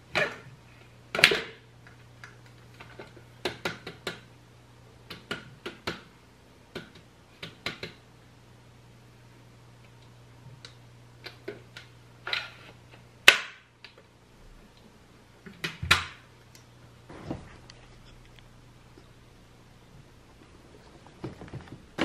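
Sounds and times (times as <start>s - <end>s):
sharp plastic snaps: 13.2s - 14.0s.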